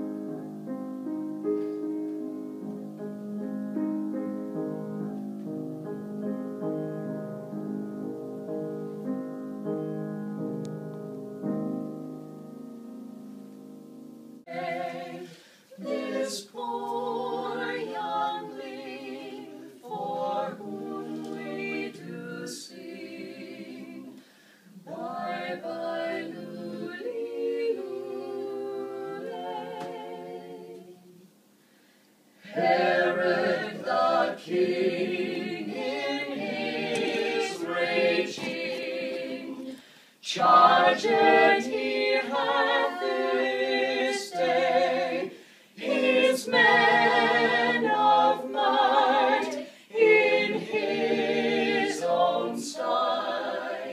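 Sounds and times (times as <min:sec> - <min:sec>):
vocal quartet singing a cappella: 0:14.5 - 0:31.4, 0:32.3 - 0:53.9.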